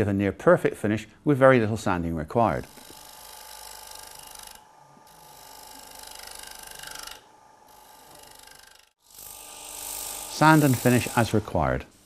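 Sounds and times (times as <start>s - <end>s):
lathe humming: 2.7s - 11.5s
hiss of tool cutting wood: 4.0s - 12.0s.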